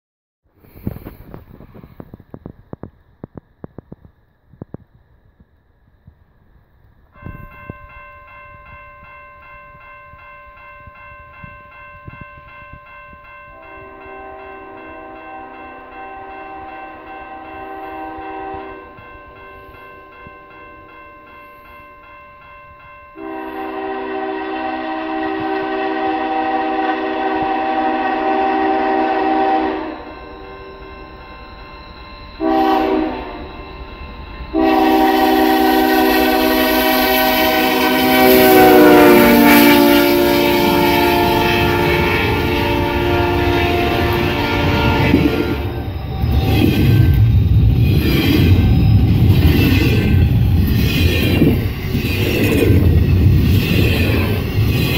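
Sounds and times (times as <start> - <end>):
passing train rumble: 0.5 - 54.9
locomotive horn blasts: 13.6 - 19.0, 23.2 - 30.2, 32.4 - 33.5, 34.5 - 45.9.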